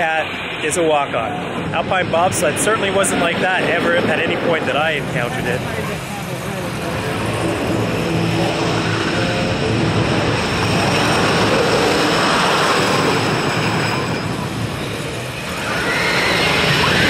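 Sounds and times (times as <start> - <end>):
people's voices: 0.0 - 10.4
roller coaster rumbling on track: 0.0 - 17.0.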